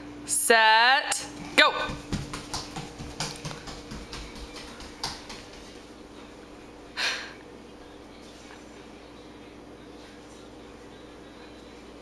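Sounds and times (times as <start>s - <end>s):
faint steady hum: 0.0s - 12.0s
bare footsteps on hardwood floor: 1.3s - 6.0s.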